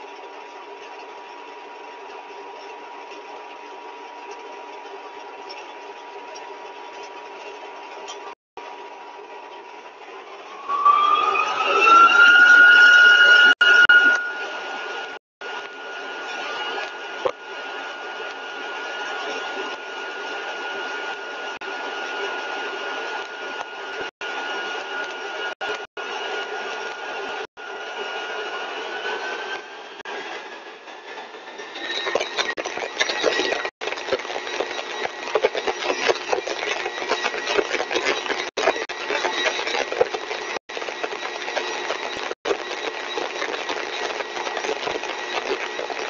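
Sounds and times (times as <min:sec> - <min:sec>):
constant high whine: 0:10.1 - 0:46.0
faint steady whine: 0:10.3 - 0:19.7
compressor mechanical noise with crackling: 0:30.1 - 0:46.0.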